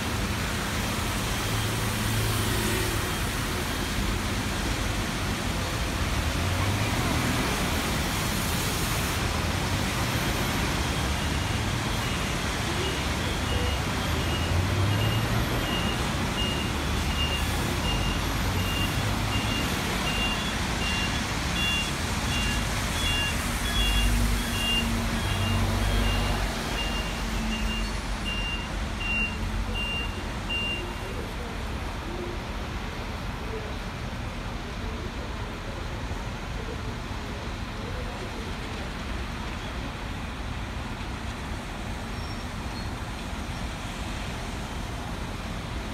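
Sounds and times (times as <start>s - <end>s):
bus and truck engines rumbling: 0.0s - 45.9s
tyre hiss on wet road: 0.4s - 12.8s.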